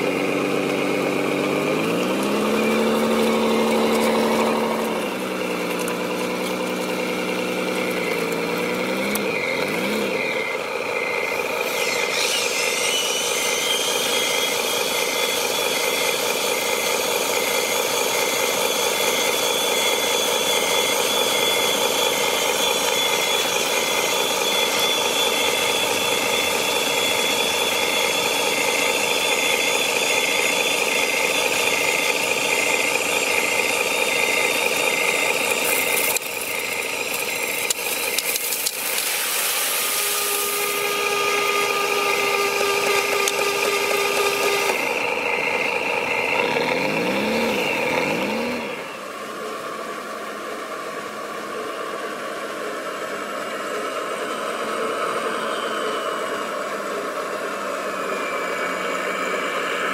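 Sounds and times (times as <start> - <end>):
high electric whine: 0.0 - 59.9
simulated diesel engine idling: 0.0 - 59.9.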